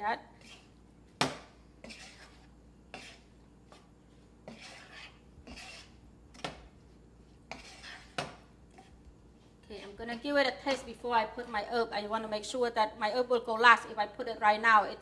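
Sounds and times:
wooden spoon scraping frying pan: 0:00.4 - 0:00.8, 0:01.8 - 0:06.5, 0:07.3 - 0:11.6.

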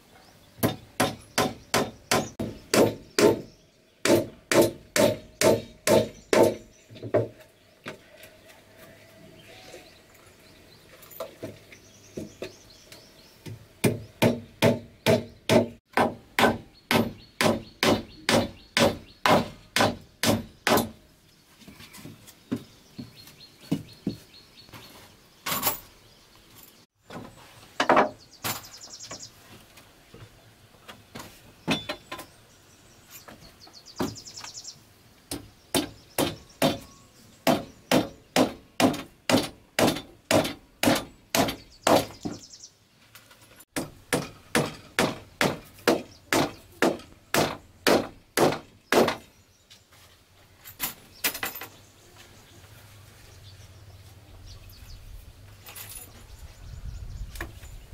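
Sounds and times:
hammer driving nails into wood: 0:13.8 - 0:21.0, 0:35.3 - 0:42.4, 0:43.8 - 0:49.3.

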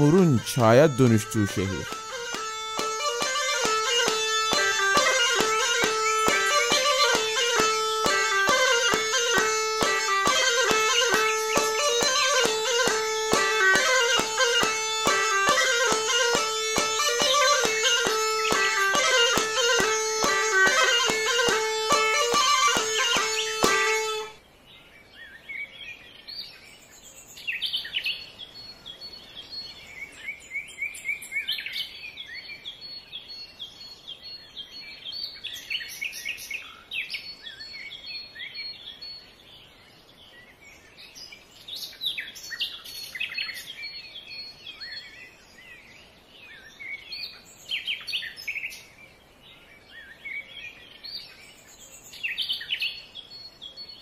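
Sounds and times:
plucked-string music: 0:00.0 - 0:24.4
birds singing and chirping: 0:00.0 - 0:54.0.

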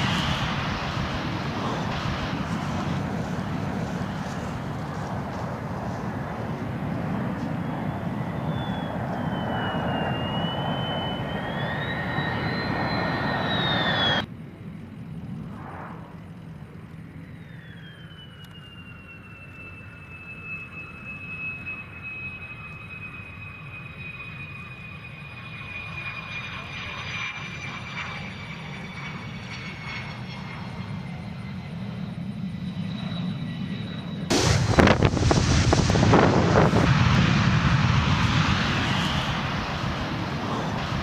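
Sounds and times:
jet engine roaring: 0:00.0 - 0:41.0
quieter jet engine whine: 0:00.0 - 0:41.0.

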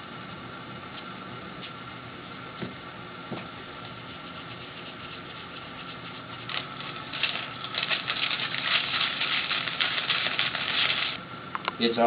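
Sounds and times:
scratchy rubbing on metal plate: 0:04.0 - 0:11.2.

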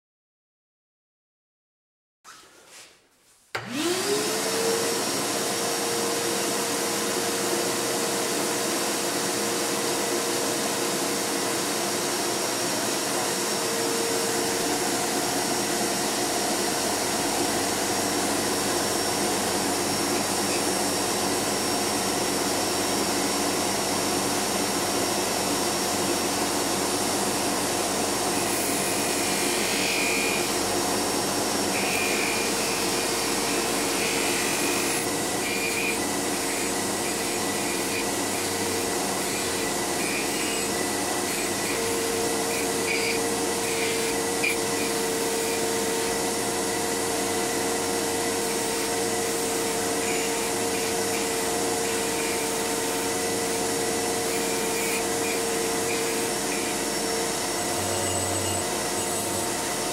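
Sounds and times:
bench grinder whine: 0:03.6 - 0:59.9.

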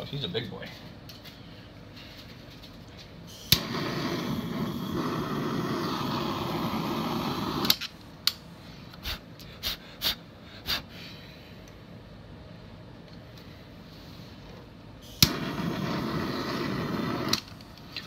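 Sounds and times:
blowtorch flame hissing: 0:03.3 - 0:07.8, 0:15.0 - 0:17.6
blowtorch ignition click: 0:03.4 - 0:08.4, 0:15.1 - 0:18.0.

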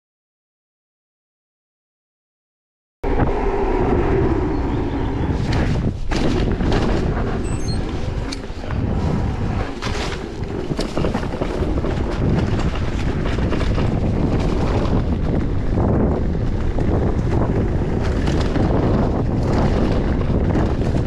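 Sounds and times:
wind buffeting microphone: 0:03.0 - 0:21.0
bike knocks and rattles: 0:05.5 - 0:21.0.

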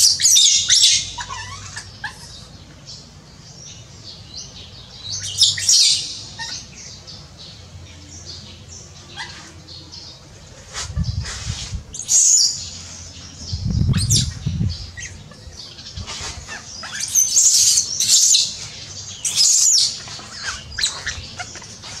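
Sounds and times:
baby monkey crying: 0:00.8 - 0:02.4.

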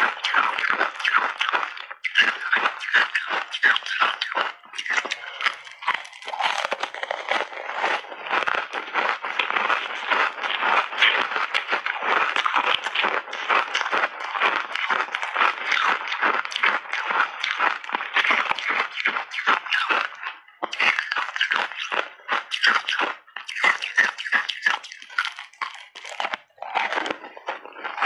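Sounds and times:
ice being crunched by teeth: 0:00.0 - 0:28.0.

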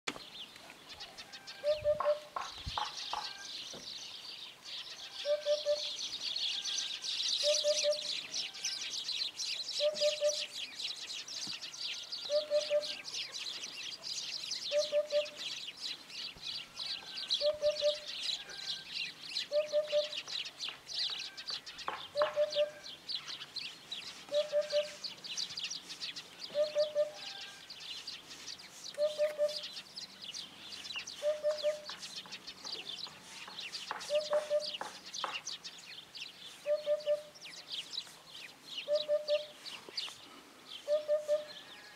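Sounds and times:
hoopoe singing: 0:01.6 - 0:02.4, 0:05.2 - 0:06.0, 0:07.4 - 0:08.7, 0:09.8 - 0:10.6, 0:12.3 - 0:13.1, 0:14.7 - 0:15.5, 0:17.4 - 0:18.2, 0:19.5 - 0:20.3, 0:21.9 - 0:23.0, 0:24.1 - 0:25.2, 0:26.5 - 0:27.2, 0:28.9 - 0:29.8, 0:31.0 - 0:32.0, 0:33.1 - 0:34.9, 0:36.6 - 0:37.4, 0:38.9 - 0:39.6, 0:40.8 - 0:41.6.

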